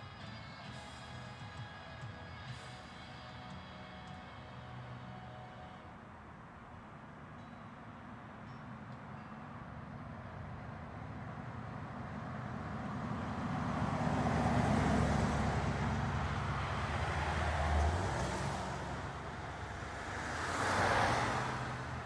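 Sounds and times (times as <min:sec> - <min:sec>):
road noise: 0:00.0 - 0:22.0
car engine humming: 0:11.0 - 0:22.0.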